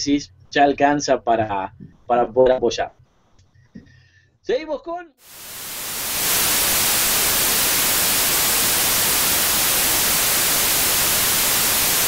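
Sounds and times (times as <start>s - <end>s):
television static hiss: 5.2s - 12.0s.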